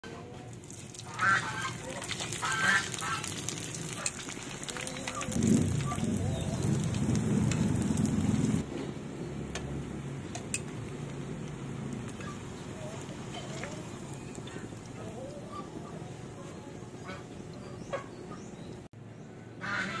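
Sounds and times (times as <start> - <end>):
fish sizzling and crackling in oil: 0.5 - 8.6, 12.0 - 15.2
low rumble: 3.9 - 8.7.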